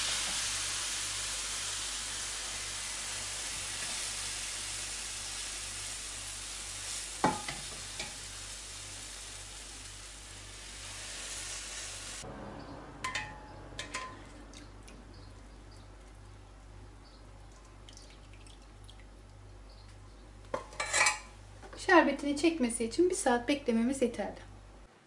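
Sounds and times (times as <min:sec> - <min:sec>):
syrup hissing and sizzling: 0:00.0 - 0:12.3
metal ladle clinking: 0:13.0 - 0:14.4.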